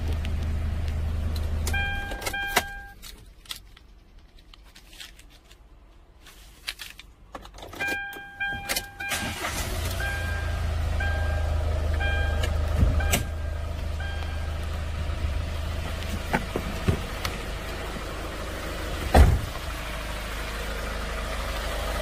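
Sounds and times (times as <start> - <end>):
diesel engine starting and idling: 0.0 - 3.0, 7.8 - 22.0
dashboard warning chime beeping: 1.7 - 3.0, 7.8 - 14.8.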